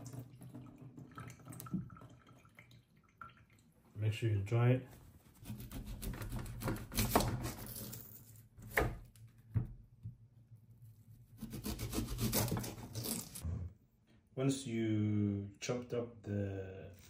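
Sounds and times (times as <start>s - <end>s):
knife scraping onion skin: 5.4s - 8.1s, 11.3s - 13.4s.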